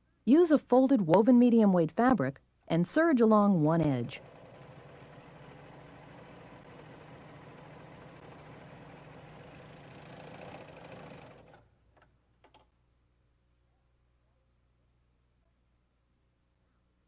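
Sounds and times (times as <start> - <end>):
serger sewing machine running: 4.0 - 11.7.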